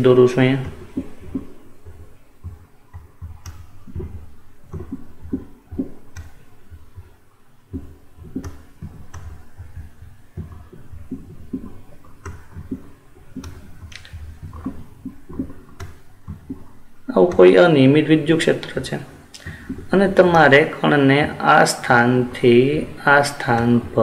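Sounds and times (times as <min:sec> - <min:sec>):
mouse knocking and rubbing: 0:00.6 - 0:17.6.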